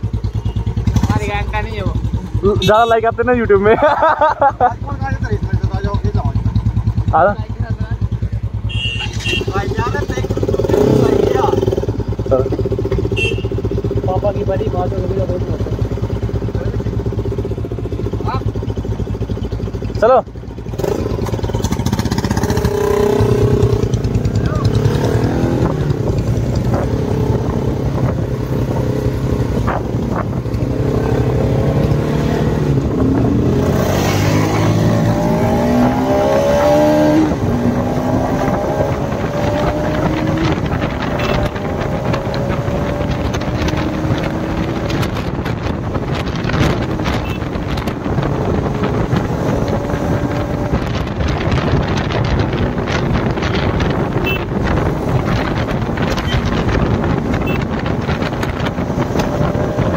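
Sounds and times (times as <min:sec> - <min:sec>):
motorcycle engine revving: 0:00.0 - 0:59.9
wind buffeting microphone: 0:20.5 - 0:59.9.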